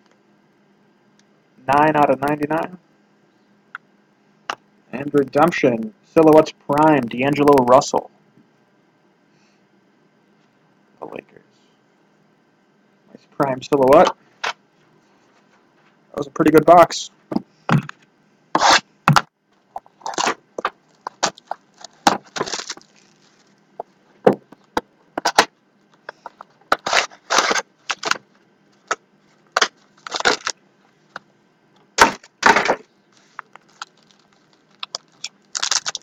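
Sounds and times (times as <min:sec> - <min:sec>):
packaging being torn open: 0:20.0 - 0:23.5, 0:26.7 - 0:28.2, 0:29.6 - 0:30.6, 0:33.2 - 0:36.0.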